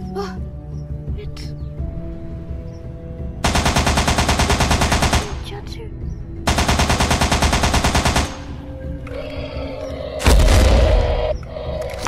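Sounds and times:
automatic rifle fire: 3.4 - 5.4, 6.5 - 8.5.

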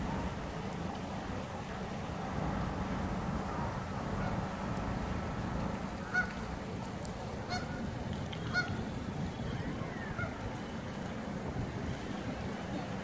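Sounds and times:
geese honking: 6.0 - 6.4.

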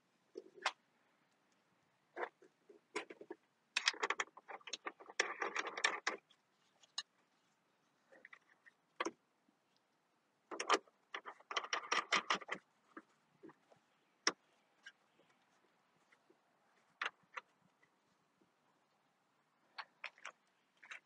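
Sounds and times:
plastic and metal parts clicking: 2.2 - 6.3, 10.5 - 13.6.

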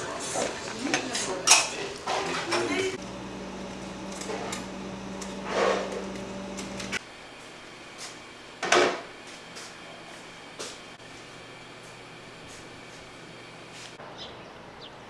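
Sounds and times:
steady low hum: 2.9 - 8.6.

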